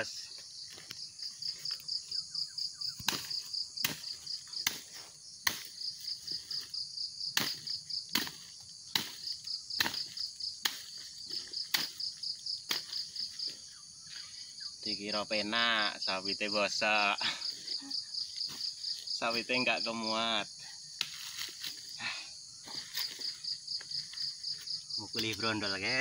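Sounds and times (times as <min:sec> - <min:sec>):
crickets trilling: 0:00.0 - 0:26.0
dull thuds of beating fruit: 0:07.4 - 0:09.2.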